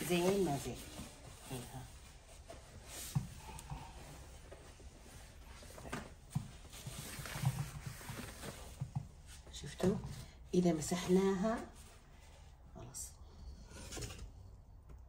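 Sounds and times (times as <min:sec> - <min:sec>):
tissue rubbing and rustling: 0:00.0 - 0:03.4, 0:04.2 - 0:09.5.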